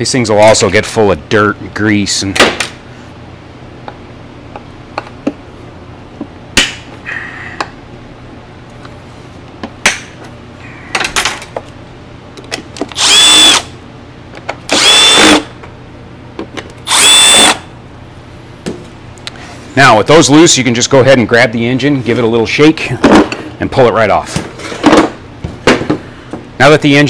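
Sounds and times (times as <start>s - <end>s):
power driver whine: 12.4s - 18.0s.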